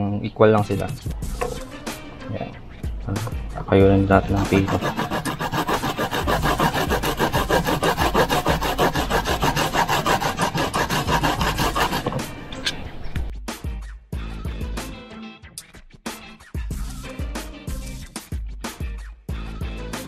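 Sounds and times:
garlic grated on plastic grater: 4.3 - 12.4.

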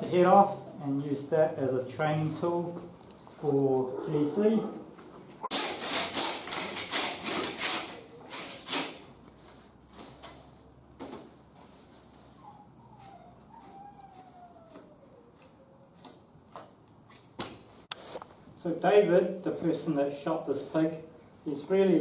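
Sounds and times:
handsaw cutting: 5.5 - 9.1.

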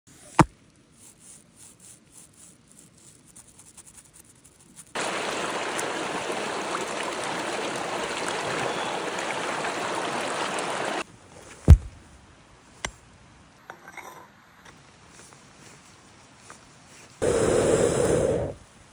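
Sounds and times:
stream running water: 4.9 - 11.1.

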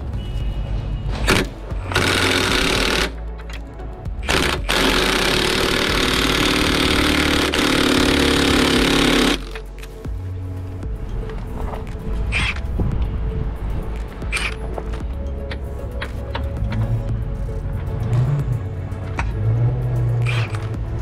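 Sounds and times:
impact wrench hammering: 1.3 - 3.2, 4.2 - 9.6.

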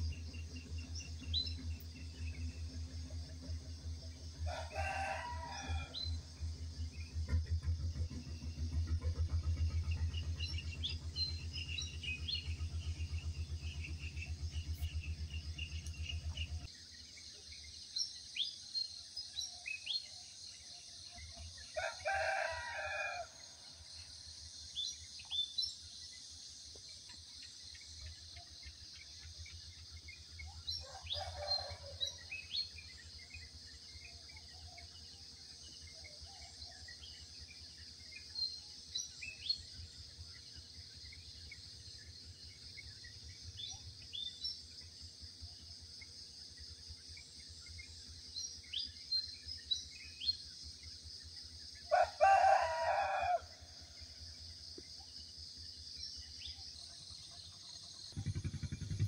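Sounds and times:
low hum: 0.0 - 17.8, 58.0 - 59.0
high drone of insects: 0.0 - 59.0
rooster crowing: 4.4 - 6.0, 21.8 - 23.4, 30.8 - 32.2, 51.9 - 53.6.

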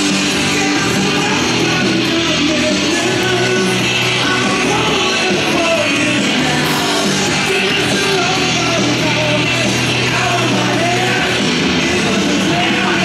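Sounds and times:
rock music with singing: 0.0 - 13.0.

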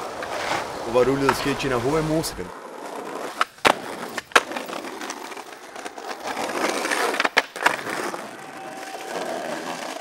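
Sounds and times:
skateboard wheels rolling on pavement: 0.0 - 10.0
skateboard clacks: 2.8 - 10.0.

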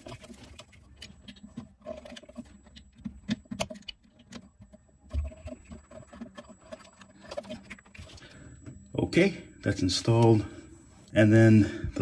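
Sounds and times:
wire connectors clicking and scraping: 0.0 - 8.4.

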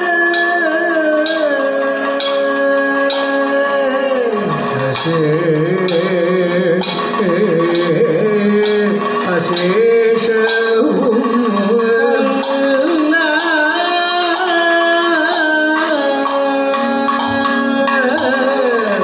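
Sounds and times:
drums: 0.0 - 19.0
man singing ornamented melody: 0.0 - 19.0
struck metal percussion: 0.0 - 19.0.

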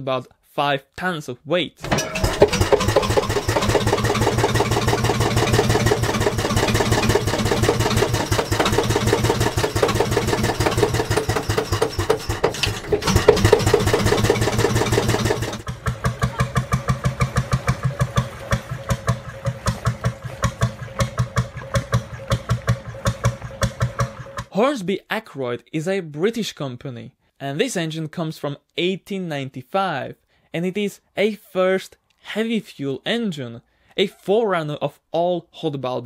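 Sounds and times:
marine engine running: 1.8 - 24.5.

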